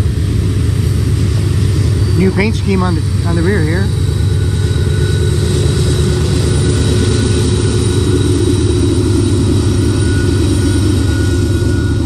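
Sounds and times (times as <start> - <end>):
diesel locomotive rumbling: 0.0 - 12.0
faint high whine: 0.0 - 12.0.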